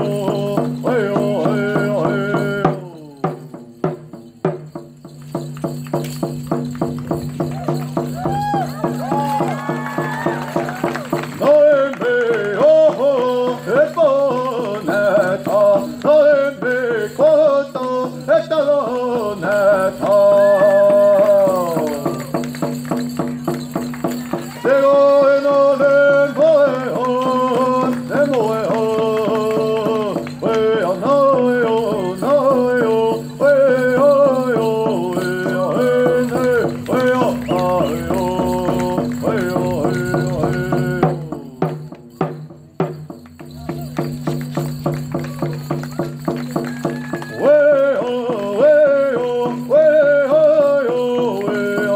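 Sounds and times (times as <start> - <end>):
person chanting: 0.0 - 3.5, 9.5 - 22.5, 24.5 - 42.1, 45.1 - 51.9
steady drumbeat: 0.0 - 51.9.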